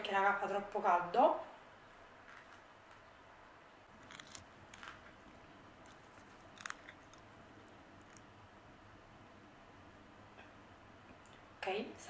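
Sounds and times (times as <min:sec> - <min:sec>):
tortilla wrap crackling: 0:03.9 - 0:05.2, 0:05.8 - 0:08.3.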